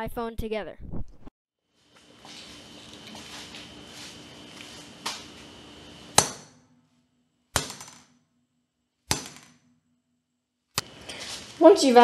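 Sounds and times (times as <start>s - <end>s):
hammer striking phone: 6.1s - 6.8s, 7.6s - 8.3s, 9.1s - 9.9s.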